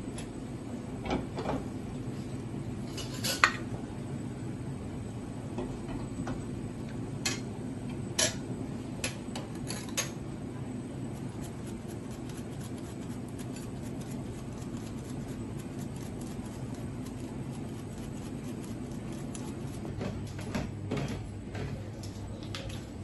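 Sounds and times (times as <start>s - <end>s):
steady low hum: 0.0s - 23.0s
truffle slicer ticking and scraping: 11.2s - 20.1s.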